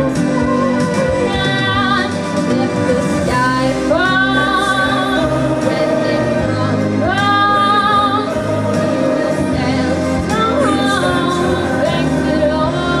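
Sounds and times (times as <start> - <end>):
musical accompaniment: 0.0 - 13.0
girl singing into a microphone: 0.2 - 2.2.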